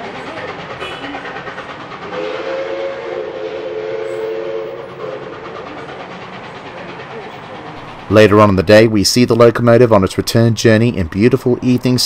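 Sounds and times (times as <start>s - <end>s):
train rumbling: 0.0s - 12.0s
train horn blast: 0.8s - 1.2s, 2.1s - 5.3s.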